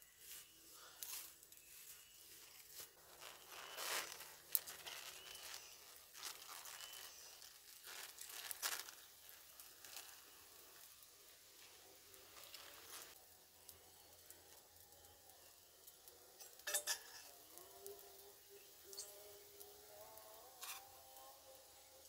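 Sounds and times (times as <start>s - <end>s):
plastic sachet tearing and crinkling: 1.0s - 13.2s.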